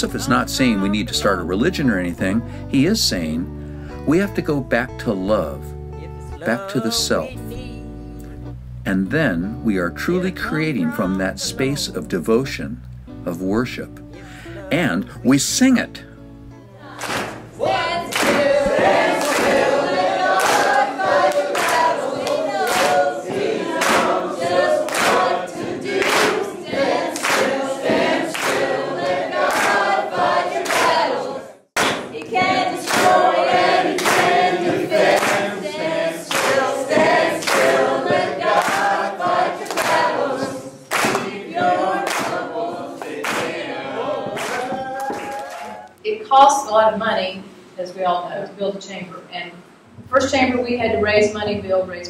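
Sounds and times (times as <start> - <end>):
group singing a chant: 16.8 - 45.9
hand clapping: 17.0 - 31.2, 31.8 - 35.5, 36.3 - 45.9.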